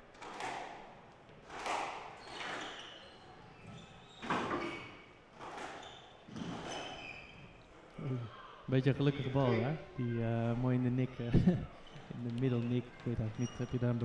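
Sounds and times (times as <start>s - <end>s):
ball hitting court walls: 0.1s - 2.9s, 3.6s - 7.5s
shoes squeaking on wooden floor: 1.3s - 8.1s, 11.8s - 14.0s.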